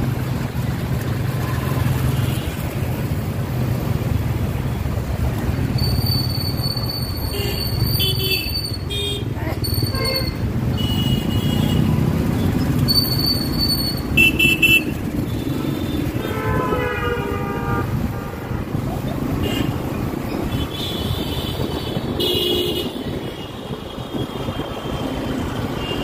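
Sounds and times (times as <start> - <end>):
motorbike engine and road rumble: 0.0 - 26.0
vehicle horns tooting: 5.8 - 26.0.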